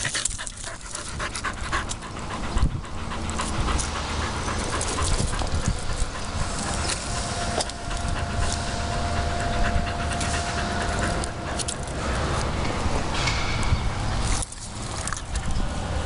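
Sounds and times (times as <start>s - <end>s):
dog panting: 0.0s - 12.6s
low rumble: 0.0s - 16.0s.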